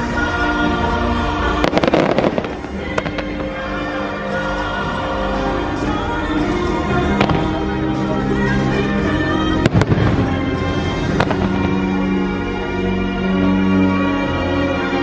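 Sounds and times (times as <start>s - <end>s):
orchestral music: 0.0s - 15.0s
fireworks bangs: 1.5s - 4.1s, 7.0s - 8.0s, 9.6s - 12.3s.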